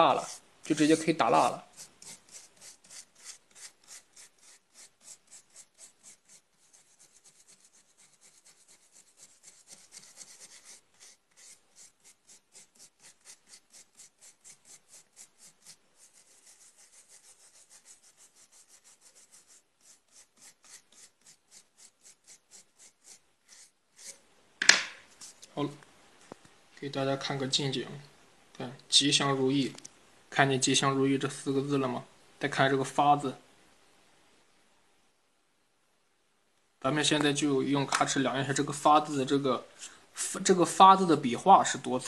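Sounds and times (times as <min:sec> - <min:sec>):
brush scrubbing wood: 0:01.3 - 0:24.2.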